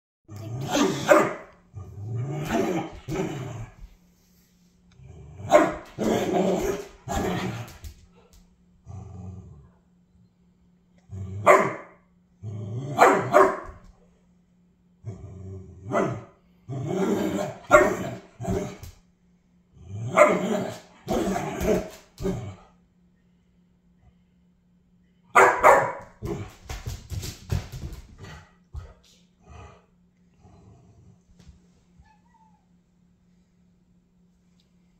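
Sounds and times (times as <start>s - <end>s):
puppy growly barking: 0.4s - 3.8s, 5.4s - 7.8s, 11.2s - 13.8s, 15.2s - 18.8s, 20.0s - 22.7s, 25.4s - 26.5s
puppy barking: 0.7s - 1.5s, 5.5s - 6.0s, 11.4s - 12.0s, 13.0s - 13.8s, 17.7s - 18.2s, 25.4s - 26.1s.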